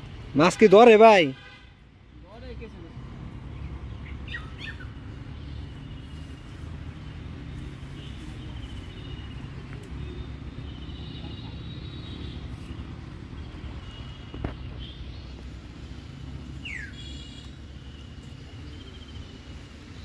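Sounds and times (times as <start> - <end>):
bird calls trilling: 3.6 - 6.0, 16.6 - 17.3.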